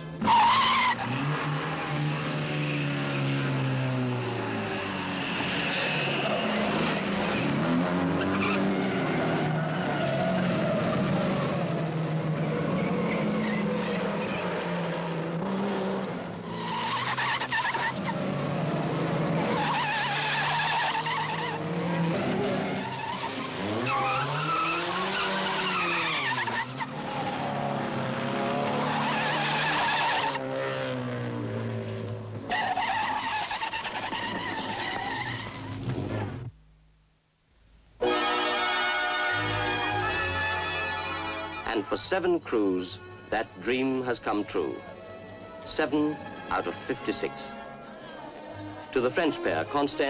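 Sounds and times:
rally car engines revving: 0:00.0 - 0:36.6
tyres squealing: 0:22.4 - 0:27.6.

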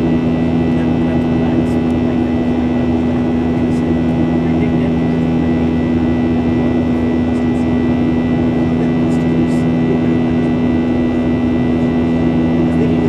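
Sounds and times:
jet engine low hum: 0:00.0 - 0:13.0.

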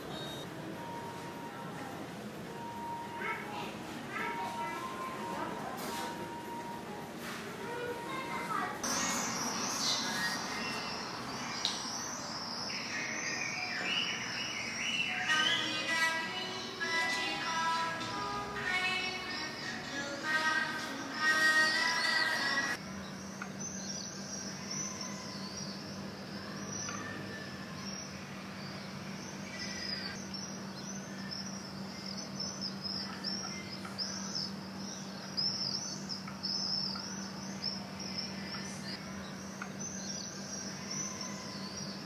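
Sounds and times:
small birds chirping: 0:00.0 - 0:00.5, 0:07.7 - 0:42.0
music: 0:15.1 - 0:22.8.

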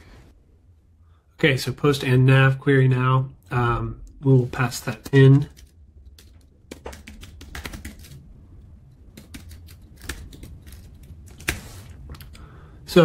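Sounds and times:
typing on computer keyboard: 0:05.5 - 0:08.2, 0:09.1 - 0:11.6.

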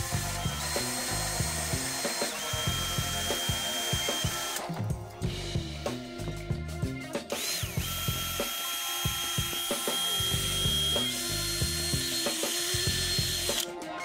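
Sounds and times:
cordless drill motor whining: 0:00.0 - 0:04.8, 0:07.3 - 0:13.7.

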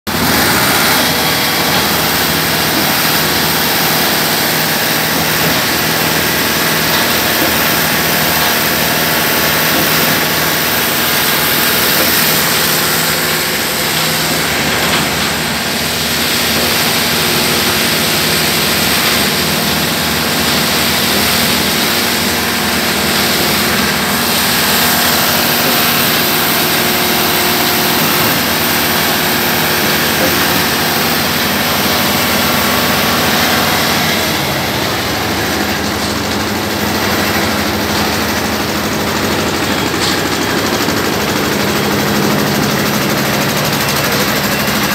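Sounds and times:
concrete pump engine running: 0:00.1 - 0:44.9.

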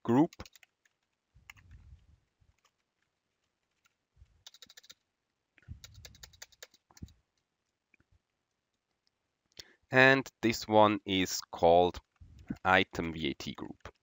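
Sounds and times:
keyboard typing: 0:00.1 - 0:01.8, 0:02.5 - 0:05.1, 0:05.7 - 0:07.3.

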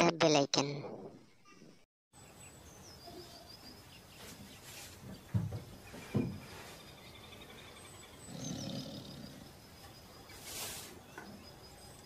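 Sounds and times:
birds chirping and trilling: 0:01.3 - 0:12.0
big cat growling: 0:08.2 - 0:09.7.

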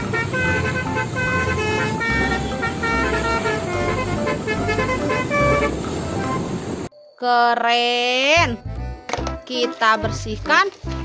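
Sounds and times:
bus engine rumble: 0:00.0 - 0:06.9
multi-tone musical bus horn: 0:00.0 - 0:06.9
passing traffic: 0:00.0 - 0:06.9.

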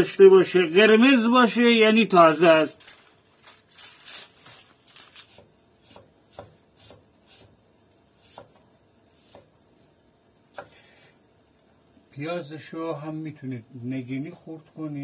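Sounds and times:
knife slicing onion on board: 0:05.2 - 0:09.6.

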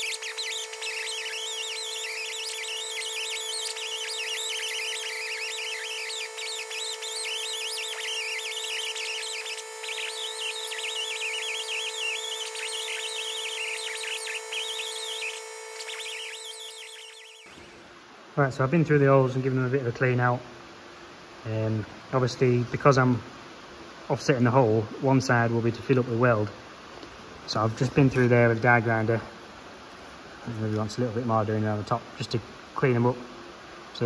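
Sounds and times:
abrasive squealing on metal: 0:00.0 - 0:17.8
die grinder whining: 0:00.0 - 0:17.9.

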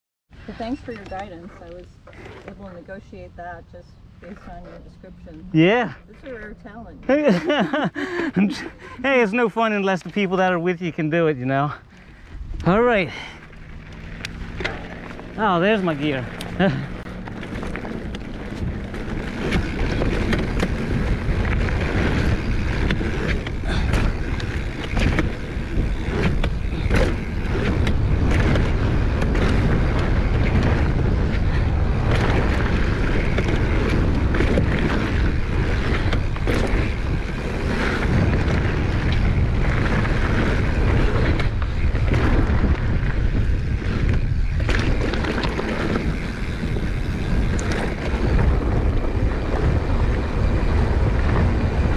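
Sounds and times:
wind rushing over microphone: 0:05.5 - 0:51.9
bike rattling over bumps: 0:06.2 - 0:51.9
tyres rumbling over gravel: 0:11.7 - 0:51.9.

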